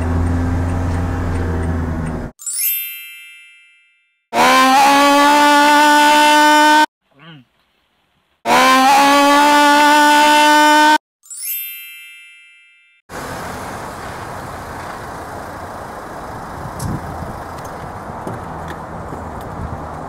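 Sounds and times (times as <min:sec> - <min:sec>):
bright chime: 0:02.4 - 0:04.3, 0:11.2 - 0:13.0
outdoor background hiss: 0:07.0 - 0:08.4.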